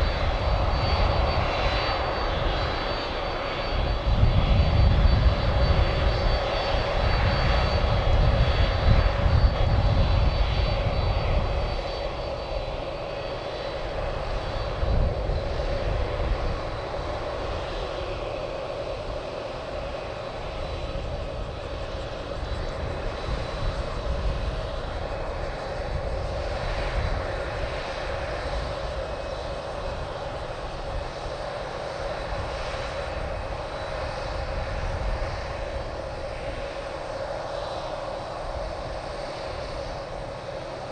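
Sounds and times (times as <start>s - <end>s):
jet engines whining at taxi power: 0.0s - 40.9s.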